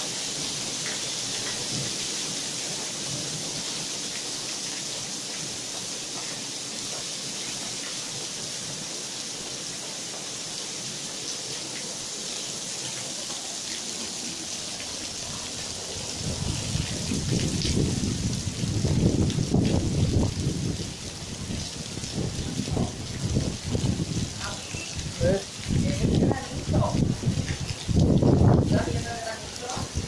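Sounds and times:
heavy rain pouring: 0.0 - 30.0.

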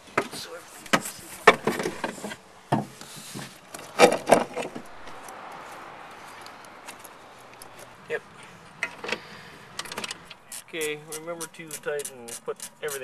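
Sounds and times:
rustling: 0.0 - 13.0.

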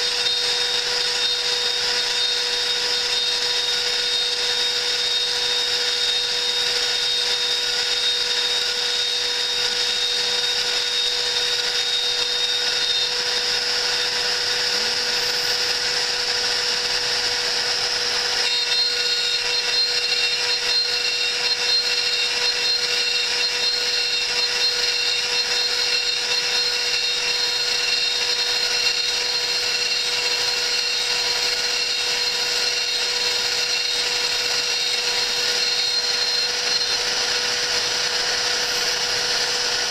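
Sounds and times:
milling machine spindle whine: 0.0 - 39.9.

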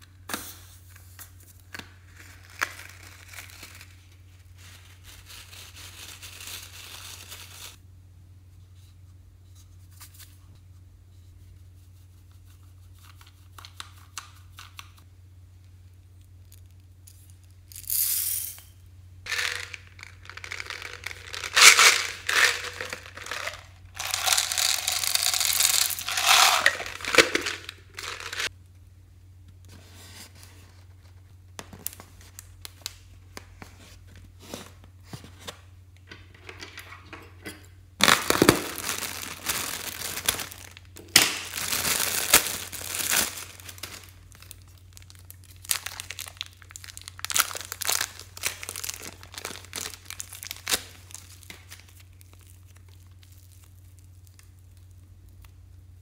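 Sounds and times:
plastic packaging crinkling and tearing: 1.7 - 7.8, 19.3 - 28.5, 38.0 - 55.4.

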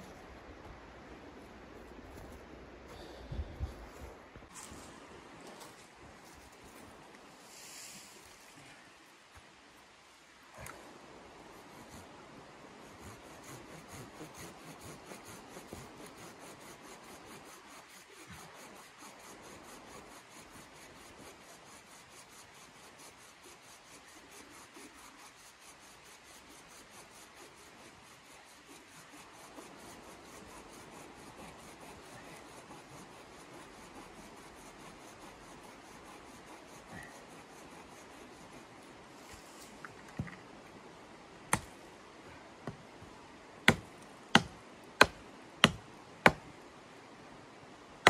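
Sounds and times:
hand tool rasping wood: 12.9 - 38.8, 43.7 - 46.4.

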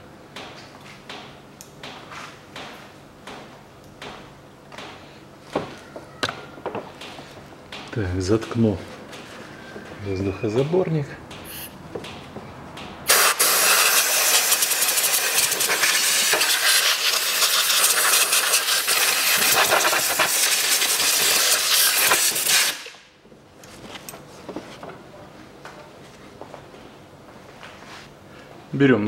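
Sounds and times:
compressed air blow gun hissing: 13.1 - 22.9.

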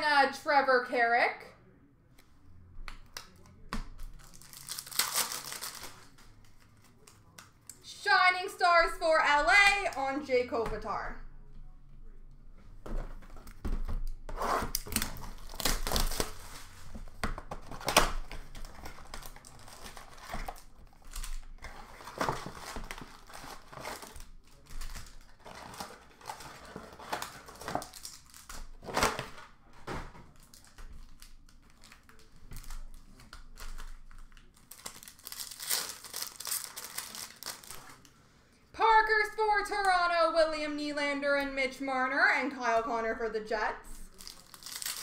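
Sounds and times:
wrappers torn and crinkled: 4.2 - 7.6, 14.7 - 16.8, 18.6 - 29.1, 30.3 - 38.1, 44.1 - 45.0.

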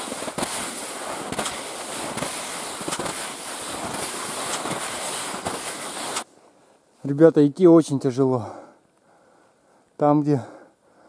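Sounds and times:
skis crunching through wet snow: 0.0 - 6.2.

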